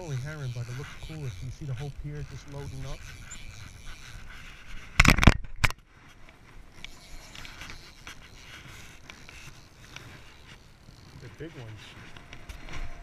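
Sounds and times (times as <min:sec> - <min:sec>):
camera scraping knocks: 0:04.4 - 0:05.8.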